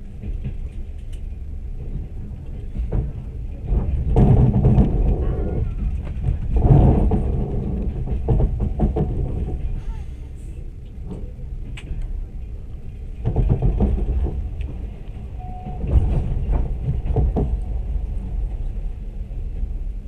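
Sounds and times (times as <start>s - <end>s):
train rumbling: 0.0s - 20.0s
knocks and rattles: 1.8s - 9.8s, 13.1s - 18.7s.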